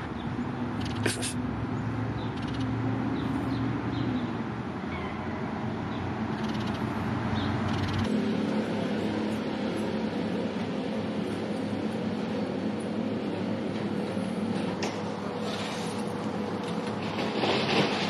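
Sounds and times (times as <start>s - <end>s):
steady background hum: 4.2s - 18.0s.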